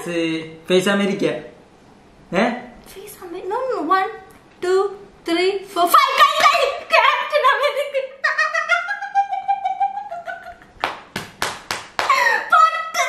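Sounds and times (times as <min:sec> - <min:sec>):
hands clapping: 0:10.8 - 0:12.2.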